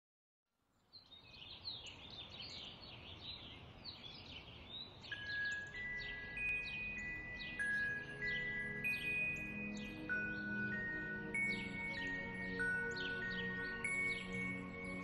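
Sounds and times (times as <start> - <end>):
small birds chirping: 0.6 - 15.0
bell-like chime music: 5.1 - 15.0.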